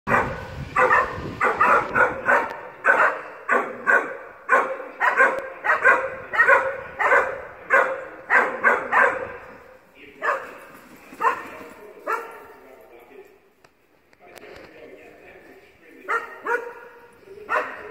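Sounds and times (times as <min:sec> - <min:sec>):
dog barking: 0:00.1 - 0:09.4, 0:10.2 - 0:10.6, 0:11.2 - 0:12.5, 0:16.1 - 0:17.9.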